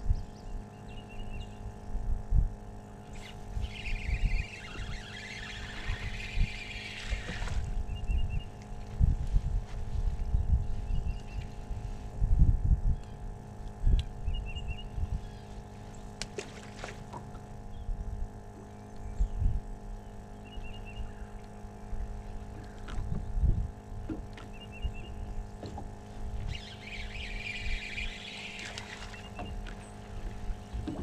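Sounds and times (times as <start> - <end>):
trolling motor electric hum: 0.0 - 31.0
low thumps and knocks on boat: 22.8 - 24.5, 25.5 - 26.0, 29.3 - 31.0
high chirping trill: 26.5 - 28.7.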